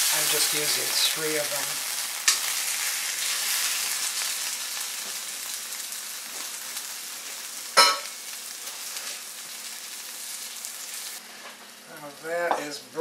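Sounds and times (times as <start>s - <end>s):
chicken sizzling in oil: 0.0s - 12.6s.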